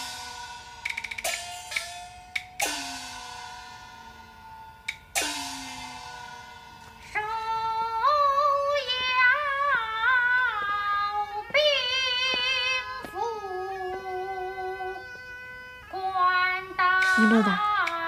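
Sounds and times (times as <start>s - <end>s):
woman singing with vibrato: 7.0s - 18.0s.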